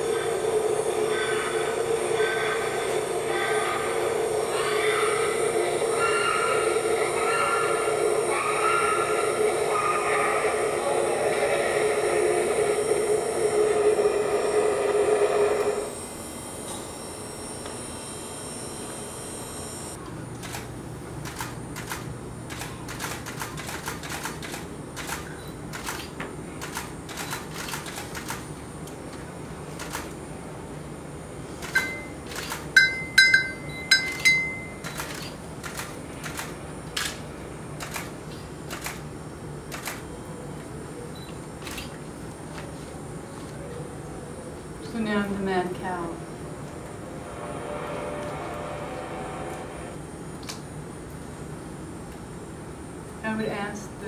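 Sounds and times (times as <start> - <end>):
electric hair clippers buzzing: 0.0 - 20.7.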